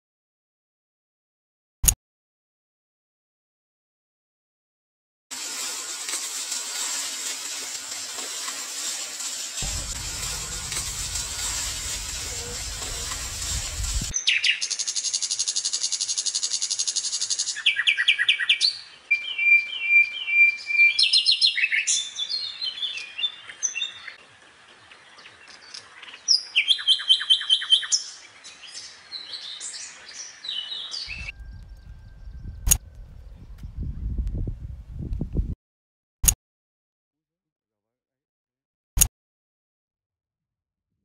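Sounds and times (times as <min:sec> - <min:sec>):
low rumble: 0:09.6 - 0:14.1, 0:31.1 - 0:35.5
songbirds chirping and singing: 0:09.7 - 0:34.1
sharp click: 0:32.6 - 0:32.8.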